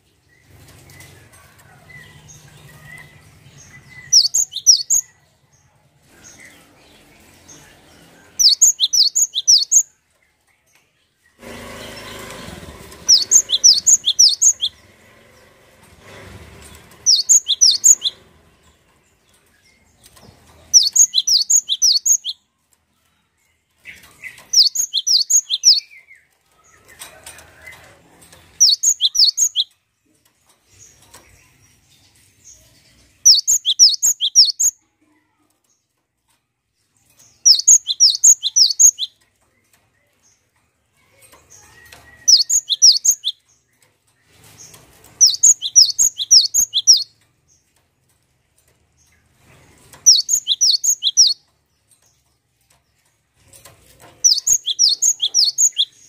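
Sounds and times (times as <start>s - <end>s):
bird singing high repeated notes: 4.0s - 5.0s, 8.4s - 9.8s, 13.1s - 14.8s, 17.1s - 18.2s, 20.8s - 22.4s, 28.6s - 29.7s, 37.5s - 39.1s, 45.2s - 47.1s, 50.1s - 51.4s, 54.3s - 56.0s.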